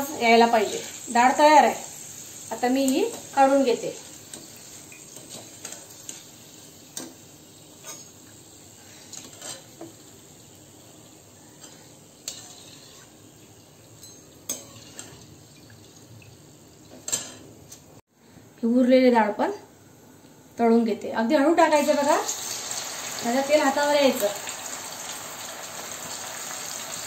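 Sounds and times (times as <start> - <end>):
frying oil hissing: 0.0 - 17.3, 21.6 - 27.0
skimmer scraping and clinking metal pan: 11.6 - 13.2, 14.0 - 15.3.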